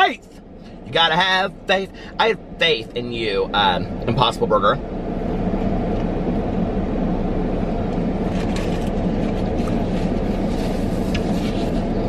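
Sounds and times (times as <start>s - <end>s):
low rumble of car running: 0.0s - 12.0s
faint rustles and clicks: 8.2s - 12.0s.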